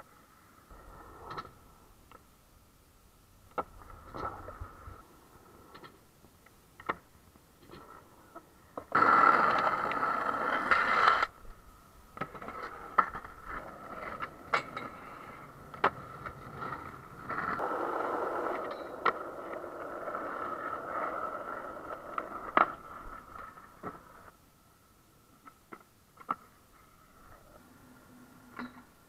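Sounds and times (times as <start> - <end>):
skateboard wheels rolling on asphalt: 0.0 - 2.4, 3.3 - 29.0
skateboard clacking on ground: 6.8 - 11.4, 12.2 - 24.3, 25.4 - 26.6.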